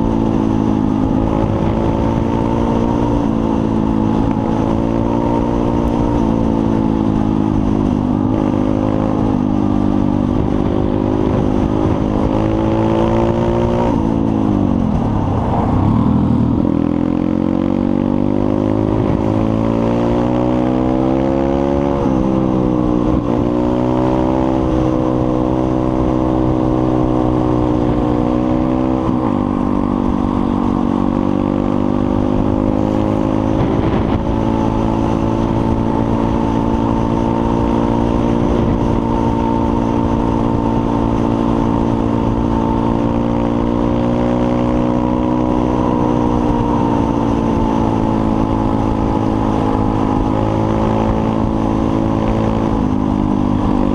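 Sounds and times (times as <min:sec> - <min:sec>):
motorbike engine accelerating: 0:00.0 - 0:53.9.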